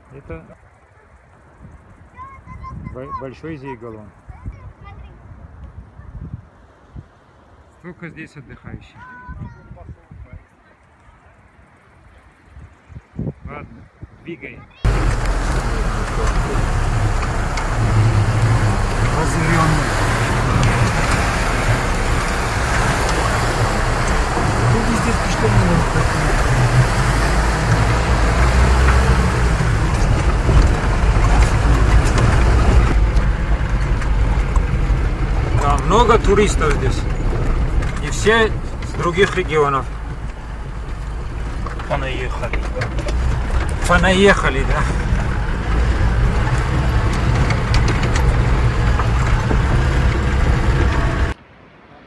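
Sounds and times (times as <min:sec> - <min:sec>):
vehicle engine low rumble: 0:14.8 - 0:51.4
body knocks and rattles: 0:14.9 - 0:51.4.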